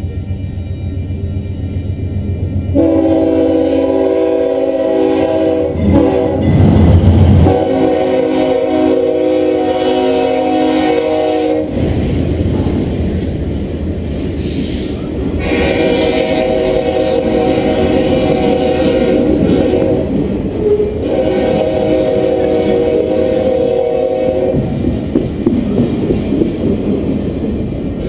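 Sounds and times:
freight train rumbling past: 0.0 - 28.0
train horn blasts: 2.7 - 6.8, 7.4 - 11.8, 15.4 - 24.8.

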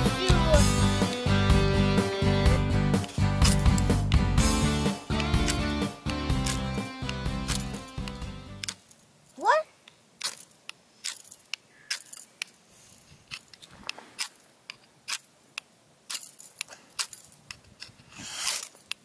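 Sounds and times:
knife scraping fire striker rod: 10.2 - 19.0.

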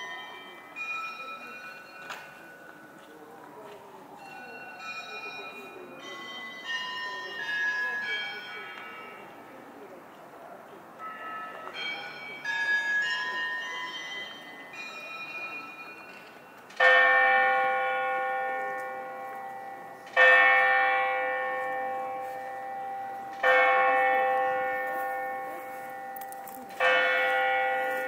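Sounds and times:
chime of smaller bells: 0.0 - 3.3, 4.2 - 9.4, 11.0 - 28.0
big bell striking: 16.8 - 28.0.

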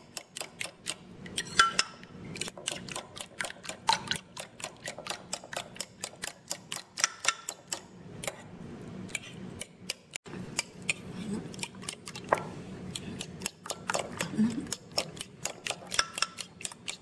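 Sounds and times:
fork clicking against ceramic bowl: 0.1 - 8.4, 12.9 - 17.0.

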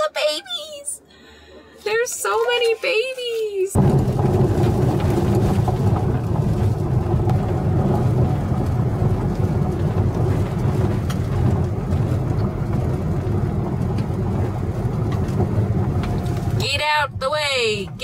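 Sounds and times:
car rumbling on gravel road: 3.7 - 18.0
gravel ticking: 3.7 - 18.0.

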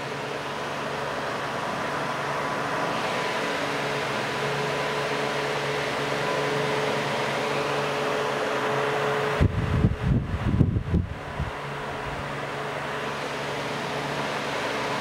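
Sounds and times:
box fan air rush: 0.0 - 15.0
fan motor hum: 0.0 - 15.0
wind buffeting microphone: 9.4 - 12.3.

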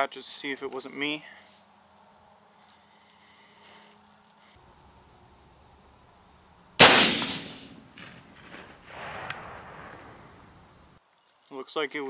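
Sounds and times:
rifle shot with echo: 6.8 - 10.7.

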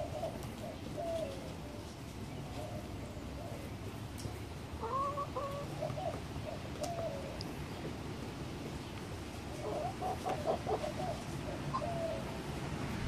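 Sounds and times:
hens clucking: 0.0 - 8.0, 8.8 - 12.4.

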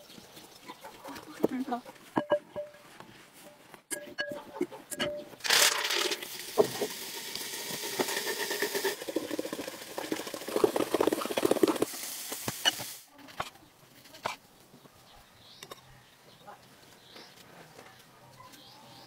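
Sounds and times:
liquid pouring into bowl of ice: 5.4 - 12.8.

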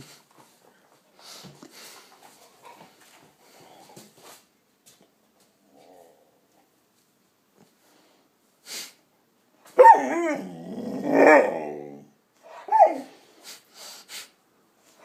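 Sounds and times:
faint noise: 0.0 - 15.0
puppy growling bark: 9.8 - 12.1.

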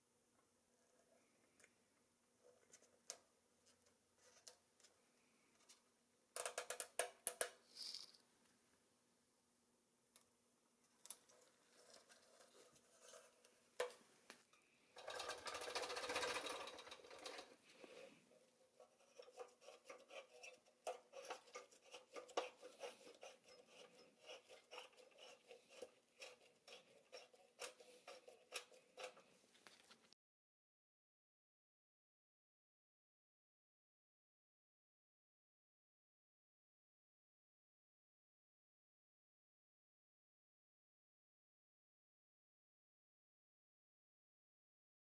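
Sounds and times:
metal toy scraping rustle: 7.7 - 8.2, 11.4 - 13.5, 15.0 - 30.0
crank wheel clicking and rattling: 15.0 - 17.5.

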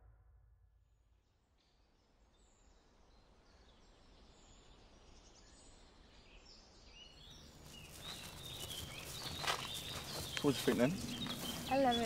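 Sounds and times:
high bird chirps: 7.7 - 12.0.

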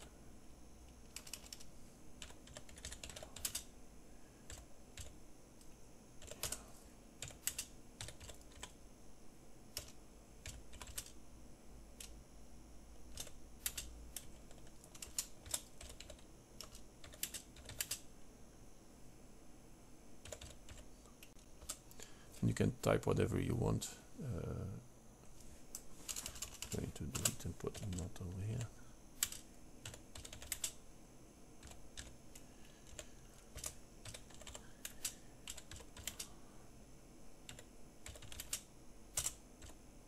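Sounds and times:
keyboard typing clicks: 1.0 - 3.7, 4.5 - 6.6, 7.2 - 8.8, 9.8 - 11.2, 13.1 - 18.0, 20.2 - 21.8, 29.2 - 30.8, 31.6 - 32.1, 32.8 - 36.3, 37.5 - 39.8.

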